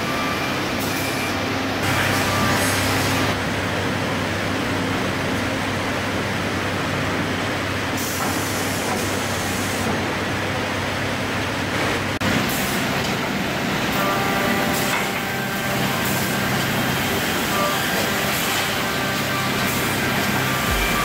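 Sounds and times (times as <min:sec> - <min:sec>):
woodworking machinery running: 0:00.0 - 0:21.0
high steady whine: 0:15.6 - 0:21.0.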